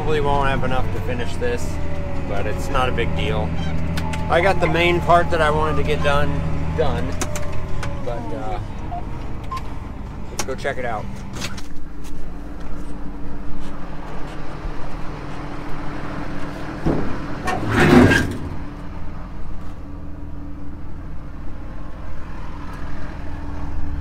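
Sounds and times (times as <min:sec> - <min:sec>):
tractor engine idling: 0:00.0 - 0:17.5.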